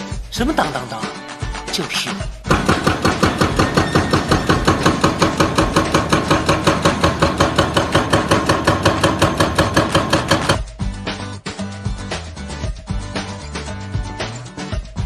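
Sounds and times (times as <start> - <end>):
fast sharp knocks: 2.5 - 10.6.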